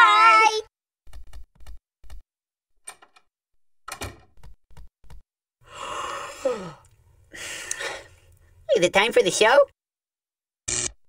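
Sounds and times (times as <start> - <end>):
sleepy breathy sigh: 5.6 - 8.2.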